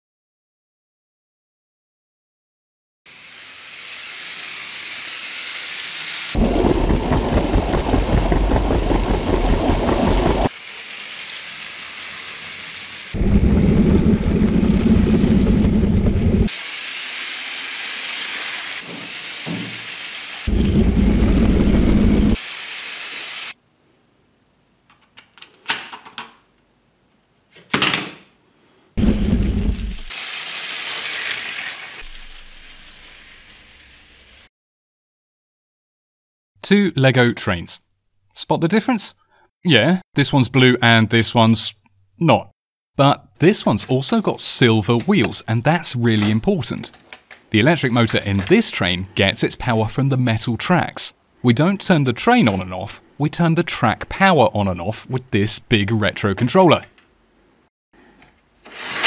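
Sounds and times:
toy train motors whirring: 3.2s - 6.3s.

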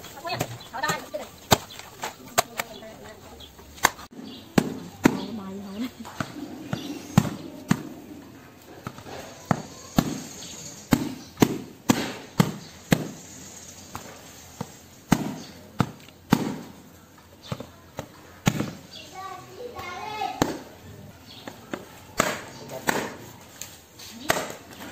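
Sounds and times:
machete chopping coconut husk: 3.8s - 5.3s, 8.8s - 13.3s, 13.9s - 16.8s, 18.4s - 18.8s, 22.2s - 23.3s, 24.1s - 24.9s.

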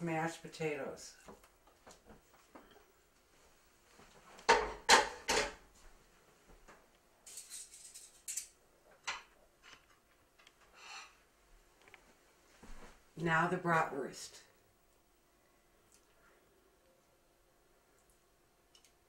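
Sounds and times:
metallic clicking and scraping: 7.2s - 8.5s.

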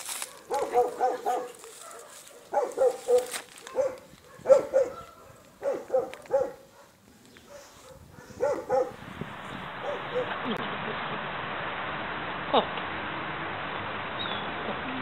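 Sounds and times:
dog barking: 0.2s - 9.0s, 9.8s - 10.4s.

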